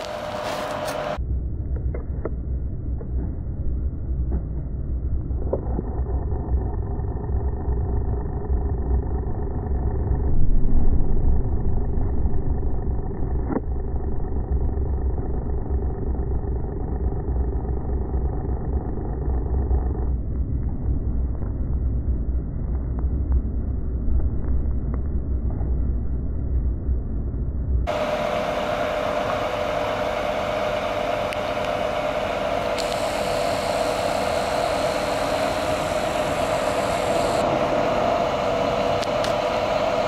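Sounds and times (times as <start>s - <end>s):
truck engine rumbling: 0.0s - 1.2s, 5.3s - 20.2s, 27.9s - 40.0s.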